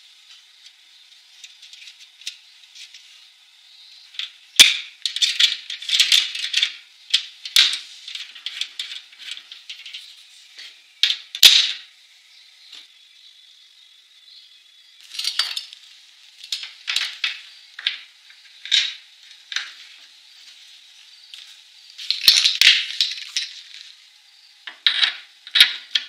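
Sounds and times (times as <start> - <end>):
welder wire feed clicks and rattling: 4.2 - 10.1, 11.0 - 11.8, 15.0 - 15.8, 16.4 - 19.8, 22.1 - 23.8, 24.7 - 26.0.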